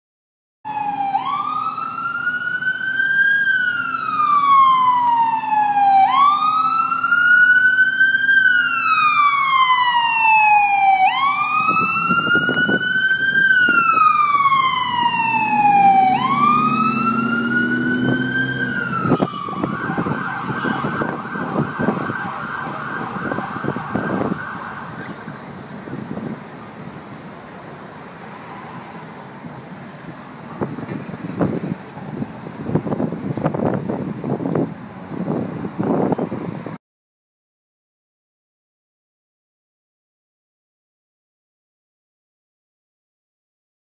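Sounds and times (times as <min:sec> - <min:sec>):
ambulance siren: 0:00.7 - 0:26.8, 0:28.3 - 0:29.2
vehicle rumble: 0:00.7 - 0:36.8.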